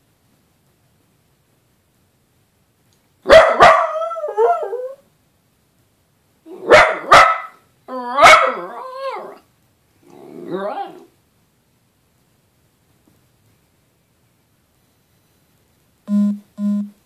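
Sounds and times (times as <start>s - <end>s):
dog barking: 3.2s - 4.8s, 6.5s - 8.7s
dog howling: 7.9s - 9.4s.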